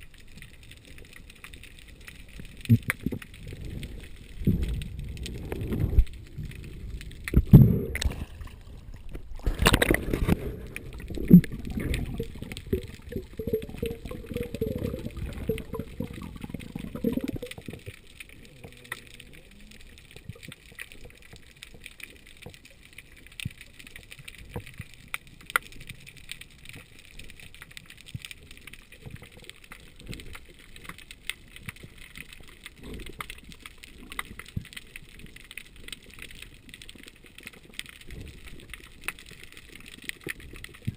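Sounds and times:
faint clicks: 0.0s - 8.2s, 8.9s - 40.9s
water sloshing against camera housing: 9.1s - 10.7s.

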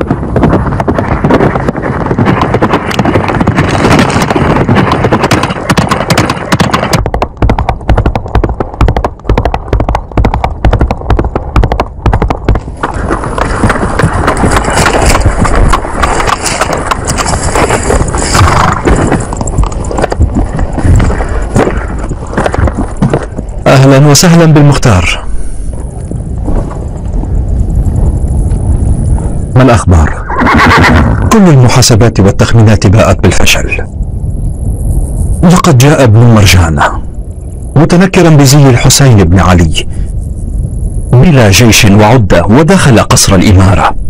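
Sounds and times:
horse hoofbeats galloping: 0.0s - 25.2s, 25.8s - 31.4s.

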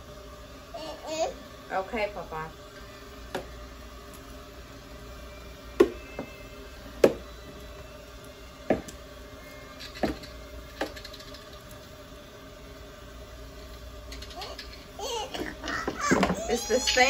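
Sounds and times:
hair steamer mist hissing: 13.5s - 17.0s
hard objects knocking: 15.4s - 16.4s.

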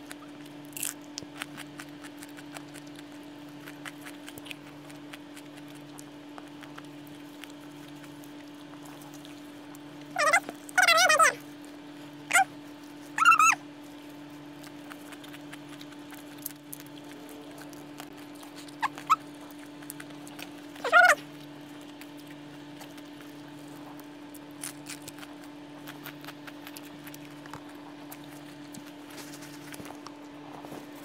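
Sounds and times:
steady low hum: 0.0s - 31.0s
high squeaky calls: 10.1s - 11.4s, 13.2s - 13.6s, 20.8s - 21.2s.

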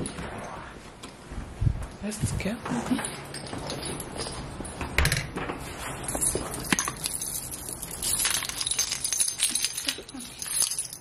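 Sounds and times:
keys jingling: 2.9s - 5.0s, 5.6s - 11.0s.

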